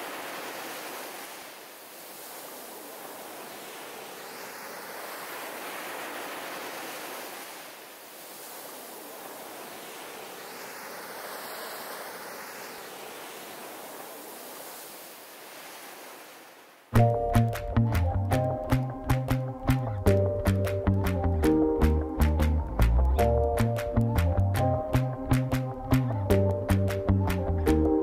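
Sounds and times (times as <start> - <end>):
ocean surf washing ashore: 0.0 - 17.6.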